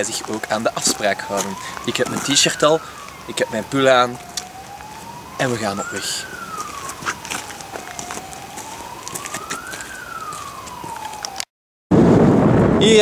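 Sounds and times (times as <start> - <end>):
siren wailing: 0.0 - 11.5.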